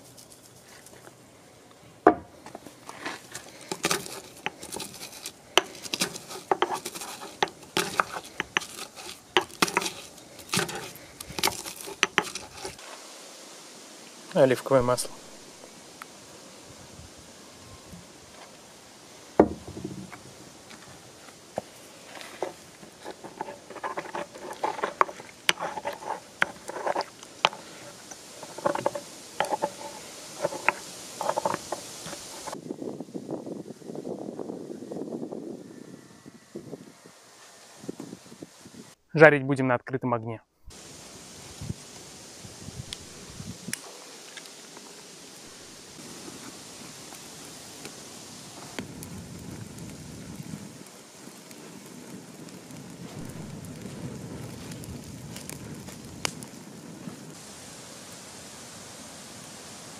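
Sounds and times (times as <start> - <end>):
pestle tapping and scraping in mortar: 2.1 - 12.8, 19.4 - 20.2, 21.6 - 32.6
pestle knocking in a mortar: 3.7 - 12.8.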